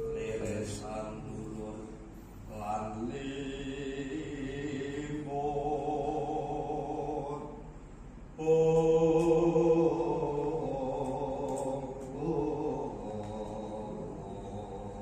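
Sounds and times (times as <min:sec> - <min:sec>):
man chanting in long held notes: 0:00.0 - 0:07.6, 0:08.4 - 0:15.0.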